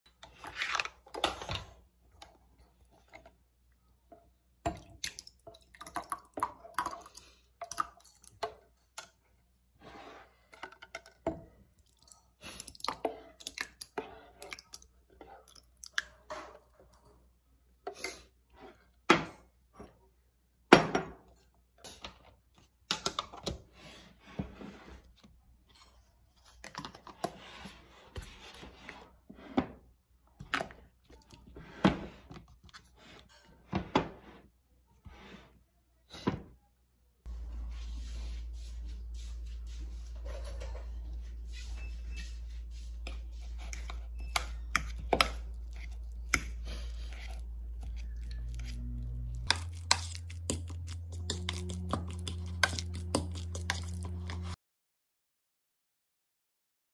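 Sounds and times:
metal spoon scraping metal pan: 43.0s - 54.6s.

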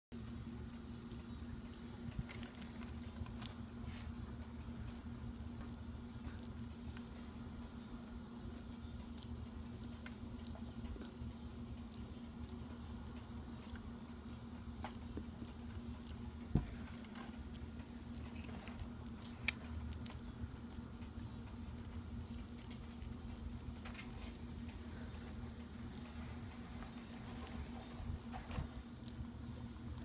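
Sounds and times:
steady low hum: 0.1s - 30.0s.

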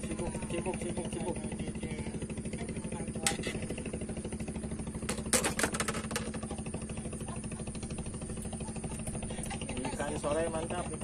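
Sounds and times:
small engine running: 0.0s - 11.0s
sharp clicks and knocks: 5.0s - 6.5s.

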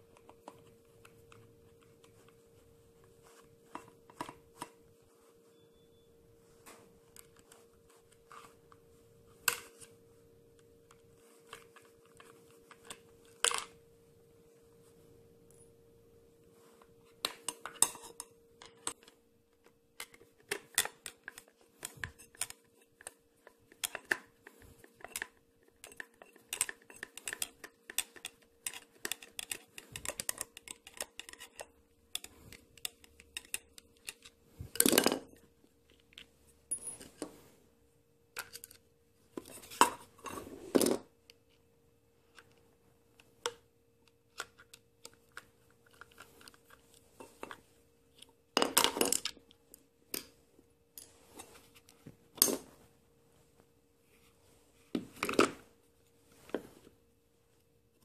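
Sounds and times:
faint steady hum: 0.0s - 58.0s
plastic and metal clicks and clinks: 17.2s - 37.2s, 38.4s - 38.8s.

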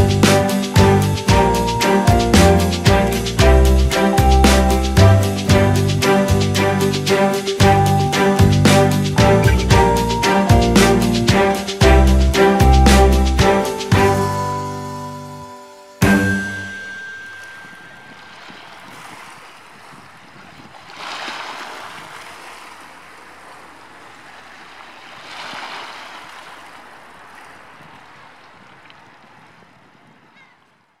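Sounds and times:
sea waves washing onto shore: 15.6s - 29.4s.

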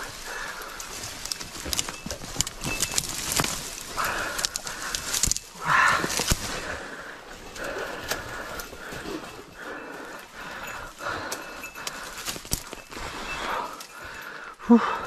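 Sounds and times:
person breathing hard: 0.0s - 2.0s, 3.2s - 15.0s
twigs snapping and rustling: 0.0s - 9.0s, 11.3s - 13.1s.

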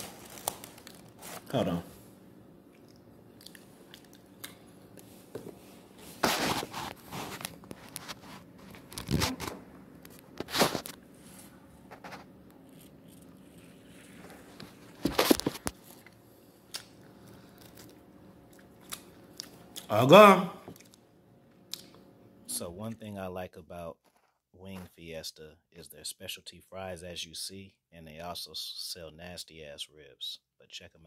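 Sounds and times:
crunchy bites and chewing: 12.7s - 19.9s.

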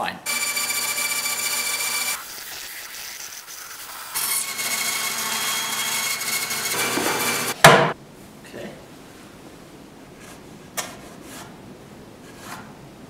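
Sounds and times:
bandsaw cutting wood: 0.3s - 7.6s.

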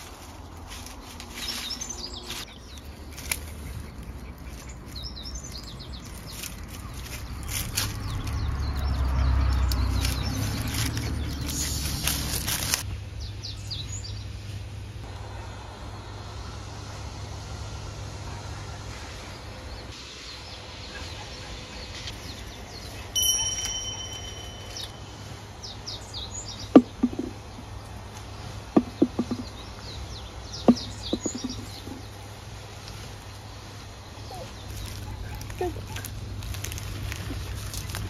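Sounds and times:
birds chirping: 1.3s - 12.5s, 19.2s - 38.0s
branches snapping and rustling: 3.1s - 4.7s, 6.0s - 8.5s, 9.5s - 12.8s, 34.6s - 38.0s.

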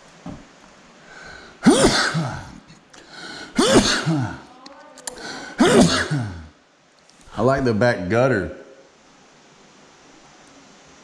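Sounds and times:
person making breathy sounds: 1.1s - 6.5s.

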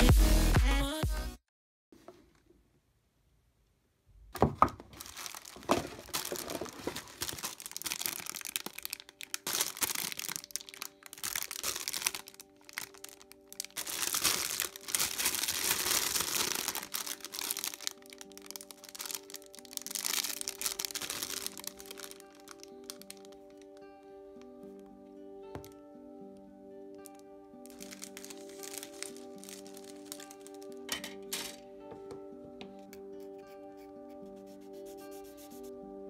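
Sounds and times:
plastic bags crinkling: 4.8s - 23.8s, 27.0s - 31.6s.

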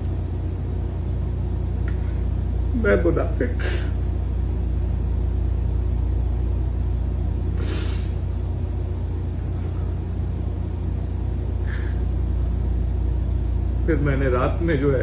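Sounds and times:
low hum: 0.0s - 15.0s
man sniffing: 7.6s - 8.2s, 11.6s - 12.1s.

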